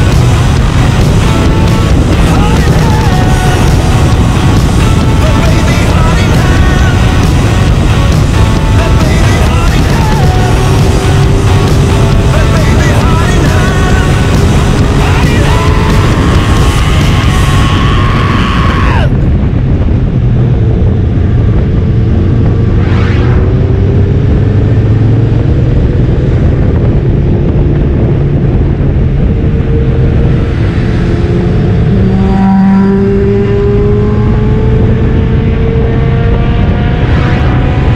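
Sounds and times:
motorcycle engine accelerating: 0:00.0 - 0:37.9
wind rumble on microphone: 0:00.0 - 0:37.9
vehicle whooshing past: 0:22.0 - 0:25.3, 0:30.3 - 0:34.4.

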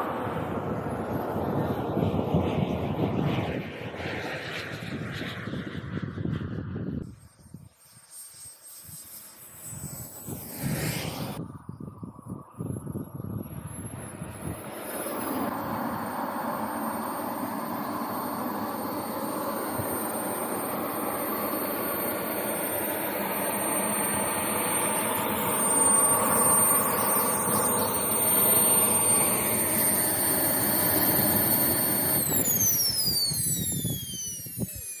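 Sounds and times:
jet engine spooling down: 0:00.0 - 0:35.0
model jet engine whining: 0:00.0 - 0:35.0.

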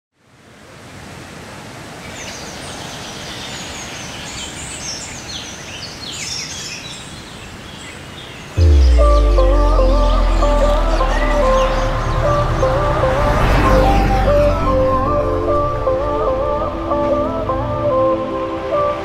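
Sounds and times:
birds chirping: 0:02.9 - 0:17.3
music with heavy bass: 0:08.6 - 0:18.5.

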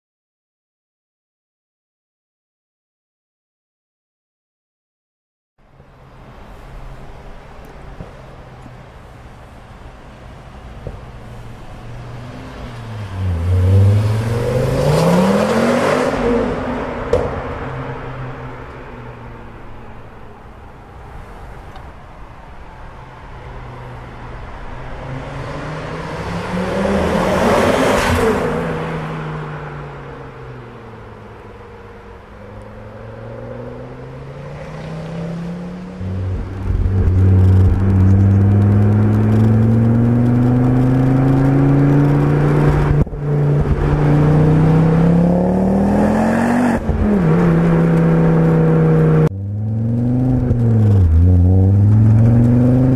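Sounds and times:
car driving past: 0:11.2 - 0:21.8, 0:32.6 - 0:52.9
car engine accelerating: 0:11.5 - 0:19.9, 0:32.5 - 0:52.9
gear changes: 0:35.8 - 0:45.1.

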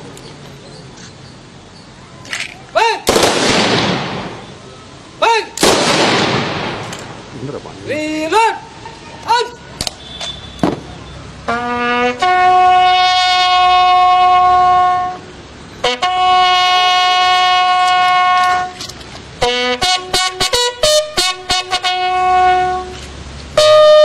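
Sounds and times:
sharp cracks: 0:02.3 - 0:04.4, 0:05.5 - 0:07.2
bugle playing funeral call: 0:11.4 - 0:24.0.

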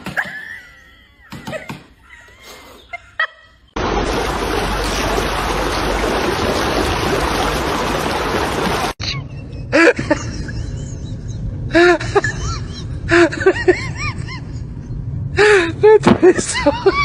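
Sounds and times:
fountain water spraying: 0:03.8 - 0:09.0.

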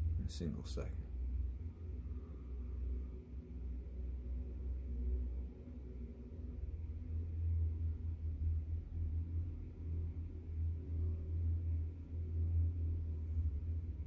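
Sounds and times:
loudspeaker deep bass hum: 0:00.0 - 0:02.8.

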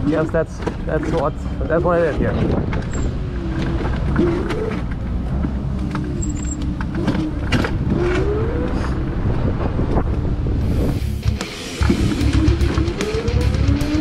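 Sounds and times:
rattles and clicks: 0:00.0 - 0:10.2.

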